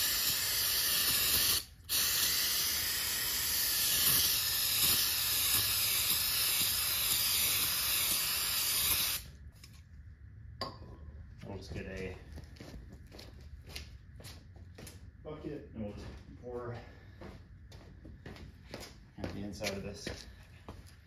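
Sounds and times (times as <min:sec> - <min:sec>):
aerosol can spraying hiss: 0:00.0 - 0:09.3.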